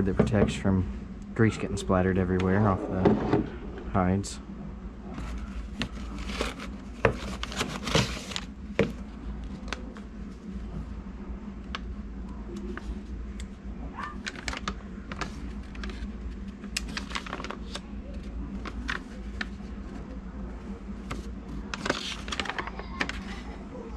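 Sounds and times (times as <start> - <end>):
cardboard box opened: 5.2 - 8.5
paper rustling: 5.2 - 8.9, 16.8 - 20.1, 21.0 - 23.4
paper leaflet crinkling: 16.8 - 19.6, 21.6 - 23.4.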